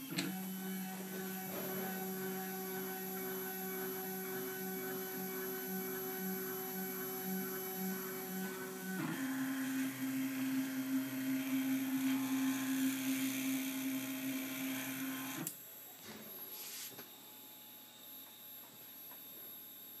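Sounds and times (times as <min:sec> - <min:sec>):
stepper motors whining: 0:00.0 - 0:15.5.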